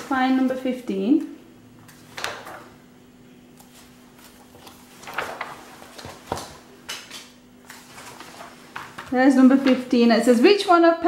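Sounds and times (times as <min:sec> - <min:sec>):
paper pages rustling: 0:01.9 - 0:02.7, 0:03.6 - 0:09.9.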